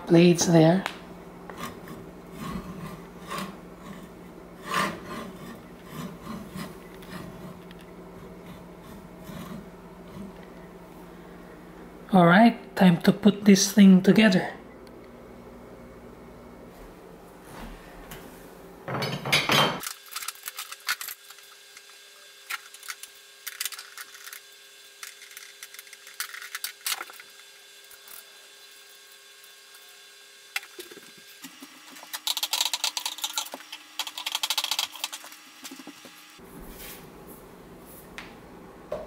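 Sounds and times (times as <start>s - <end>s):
loud scrape: 1.6s - 7.6s.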